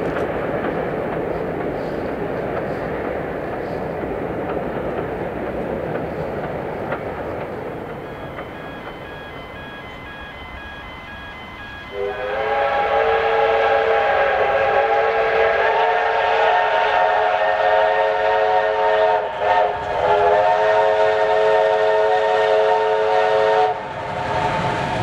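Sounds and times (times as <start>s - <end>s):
steam train rumble: 0.0s - 25.0s
steam locomotive whistle: 8.1s - 23.9s.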